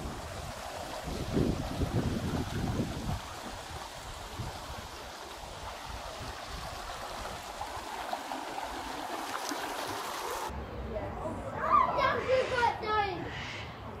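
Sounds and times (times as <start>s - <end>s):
wind buffeting microphone: 0.0s - 8.2s
creek babbling over rocks: 0.0s - 10.5s.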